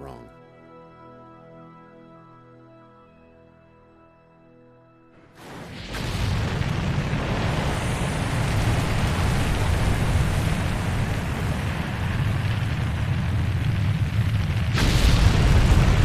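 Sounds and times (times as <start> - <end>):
rocket engines roaring: 5.4 - 16.0.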